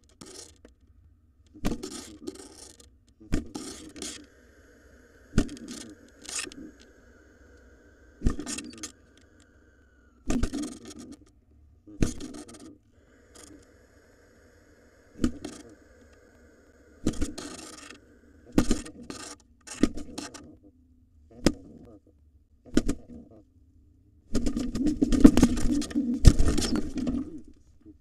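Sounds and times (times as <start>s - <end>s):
wing flapping: 3.4s - 11.2s
wings slapping and scraping: 5.1s - 9.6s.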